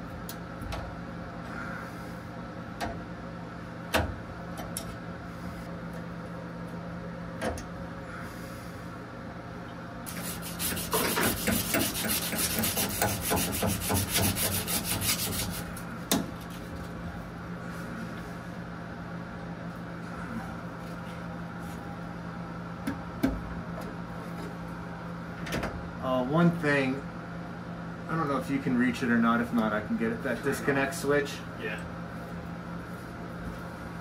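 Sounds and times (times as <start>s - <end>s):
tool rasping on metal: 10.1s - 15.7s.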